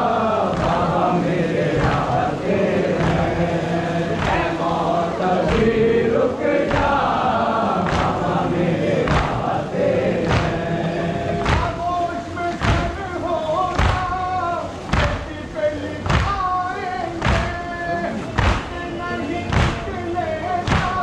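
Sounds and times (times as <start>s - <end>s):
men chanting in unison: 0.0s - 21.0s
chest-beating slaps: 4.1s - 5.8s, 7.8s - 8.4s, 9.0s - 9.5s, 10.2s - 11.8s, 13.7s - 14.2s, 17.2s - 17.6s, 18.4s - 18.8s, 19.5s - 20.0s, 20.6s - 21.0s.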